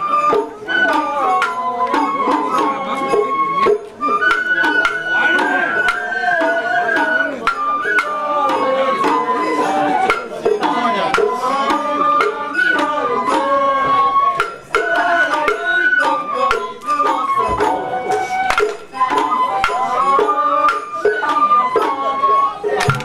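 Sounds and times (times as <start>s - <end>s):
bamboo flutes melody: 0.0s - 23.0s
drum and gong strikes: 22.8s - 23.0s.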